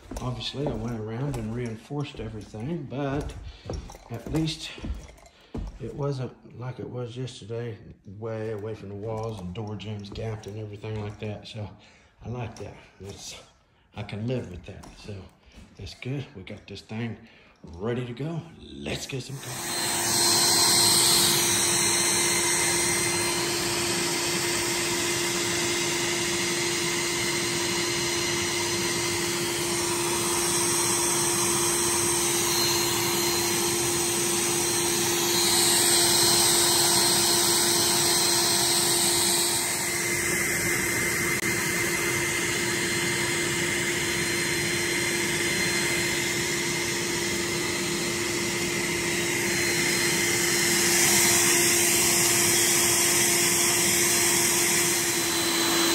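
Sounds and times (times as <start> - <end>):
electric motor whirring hiss: 19.2 - 55.9.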